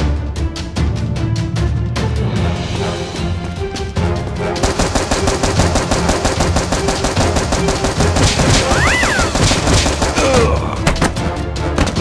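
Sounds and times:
background music: 0.0 - 12.0
automatic gunfire: 4.6 - 10.4.

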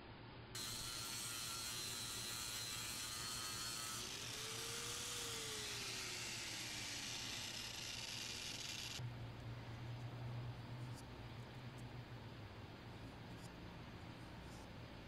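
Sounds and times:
electric grinder whining and rasping: 0.6 - 9.0.

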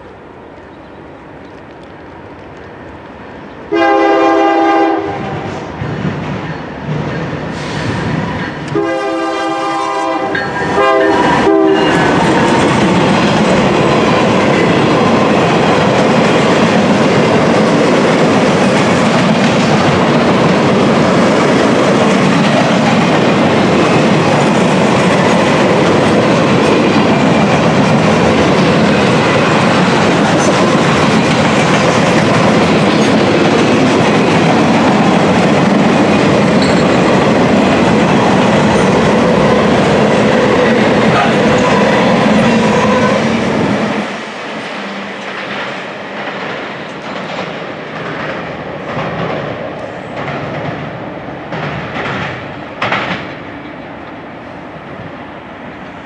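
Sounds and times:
train cars rumbling and clacking: 0.6 - 56.0
locomotive horn: 3.7 - 5.6, 8.7 - 12.2, 41.2 - 43.4.

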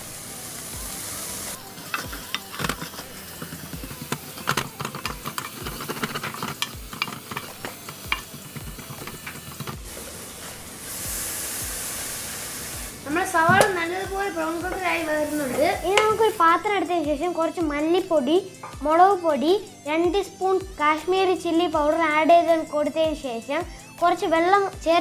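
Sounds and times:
onions sizzling in oil: 0.0 - 16.5
spoon stirring and knocking pan: 1.8 - 9.9, 13.4 - 16.2.

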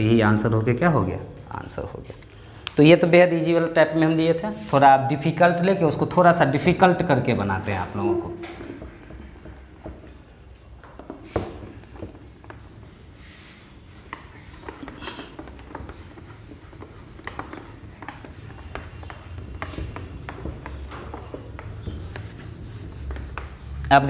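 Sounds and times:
cloth wiping whiteboard: 3.5 - 4.8, 6.6 - 24.0.

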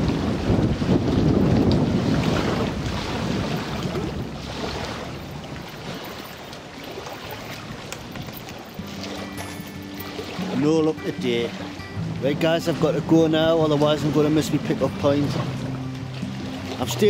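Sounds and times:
wind buffeting microphone: 0.0 - 9.0
choppy lake water: 0.0 - 17.0.

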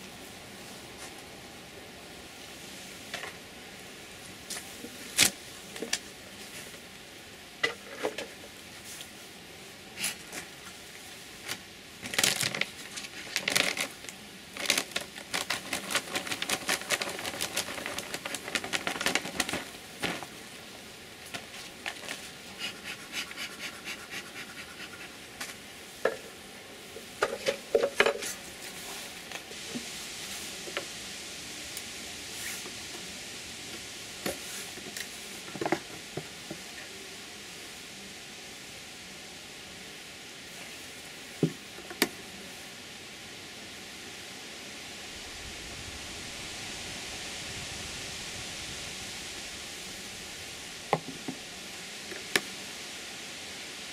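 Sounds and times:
cloth peeling crackle: 12.0 - 20.3.

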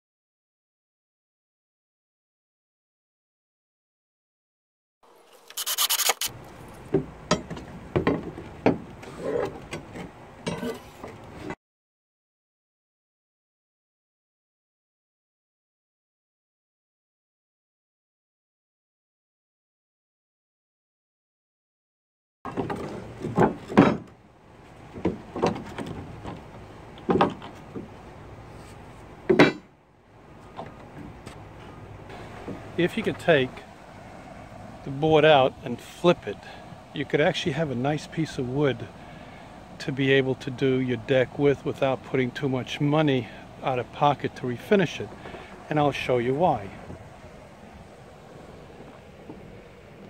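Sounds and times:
cordless drill running: 5.3 - 6.3.

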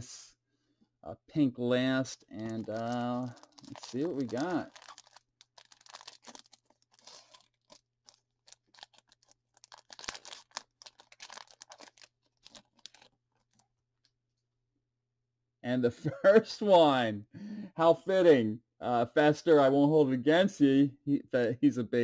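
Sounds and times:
foil wrapper tearing and crinkling: 2.4 - 13.6.

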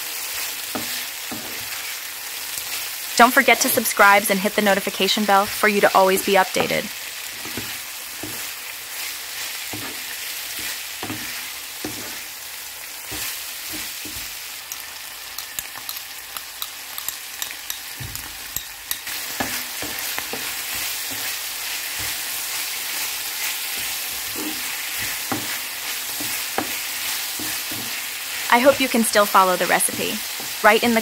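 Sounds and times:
food sizzling in hot oil: 0.0 - 31.0.

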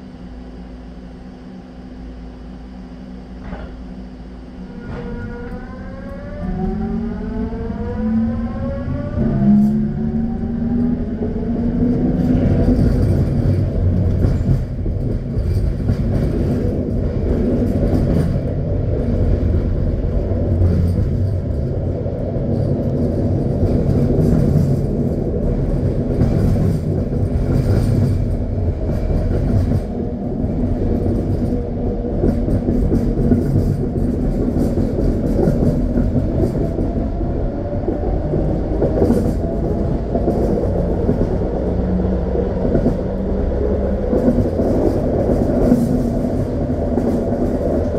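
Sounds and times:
train propulsion whine: 0.0 - 47.9
train running gear rumble: 0.0 - 47.9
wheels clicking on track: 10.7 - 47.9.

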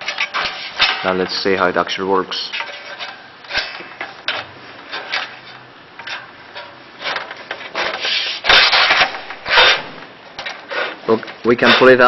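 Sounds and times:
aluminium scraping on aluminium: 0.0 - 1.4, 2.4 - 10.0.

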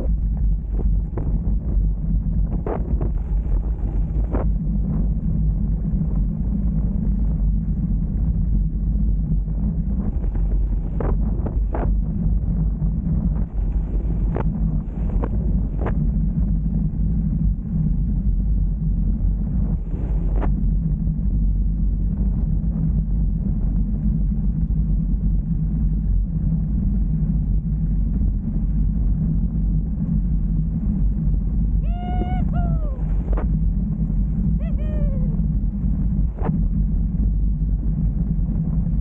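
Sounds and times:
wind buffeting microphone: 0.0 - 39.0
short pitched call: 31.8 - 33.1, 34.6 - 35.4.

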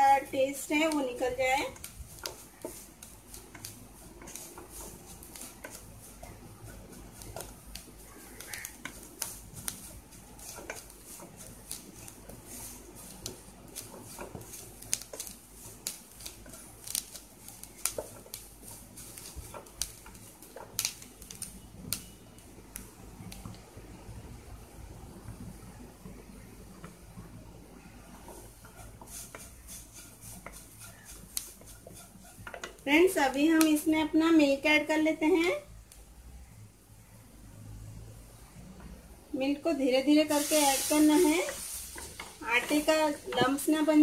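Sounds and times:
wooden spatula scraping a pan: 0.2 - 21.0, 28.1 - 34.2, 40.0 - 44.0.

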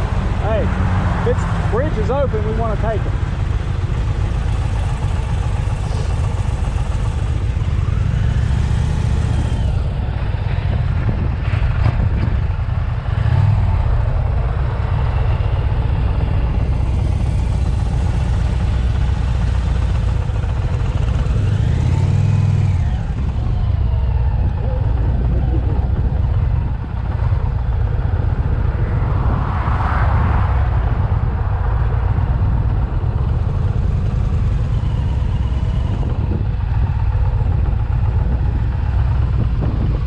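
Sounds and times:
wind rushing over microphone: 0.0 - 18.3, 20.2 - 40.0
motorcycle engines droning: 0.0 - 40.0.

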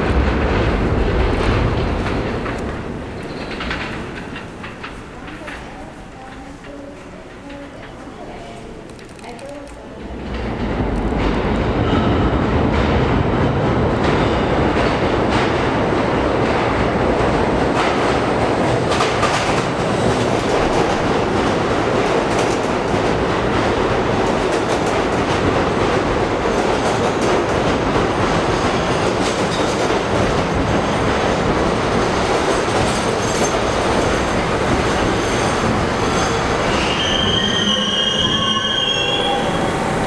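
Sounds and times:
train wheels on track: 0.0 - 40.0
high brake squeal: 36.6 - 39.8.

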